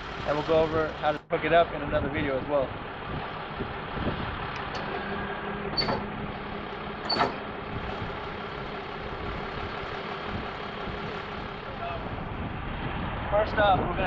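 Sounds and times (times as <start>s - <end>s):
hydraulic lift mechanical hum: 2.7s - 13.0s
sharp metal clanks: 7.0s - 7.5s.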